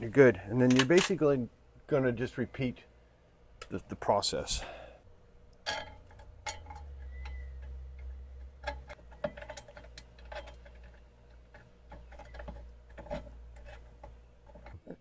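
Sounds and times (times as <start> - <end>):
low steady hum: 0.0 - 15.0
metal clicks of nut and bolt: 0.6 - 1.2, 5.6 - 14.8.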